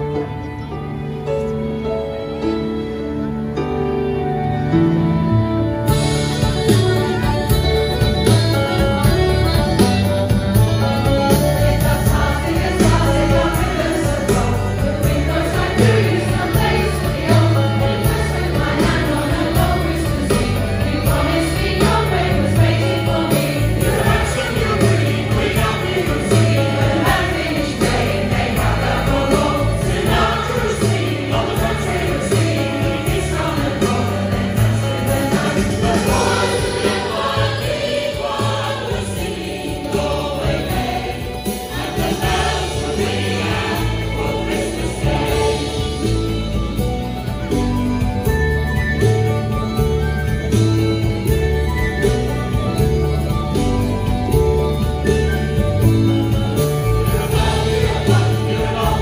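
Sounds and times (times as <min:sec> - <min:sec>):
backing music with pulsing bass: 0:05.4 - 0:59.0
mixed choir singing: 0:11.0 - 0:46.9, 0:56.8 - 0:59.0.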